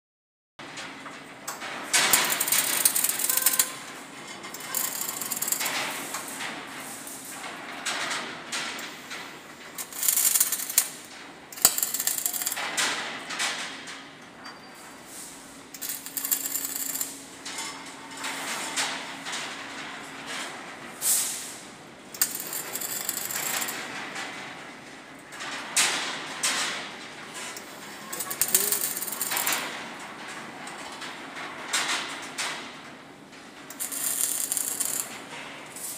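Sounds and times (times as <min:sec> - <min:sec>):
arc welding crackle: 0:01.5 - 0:14.0, 0:15.1 - 0:19.8, 0:22.1 - 0:24.4, 0:27.4 - 0:30.1, 0:33.7 - 0:35.9.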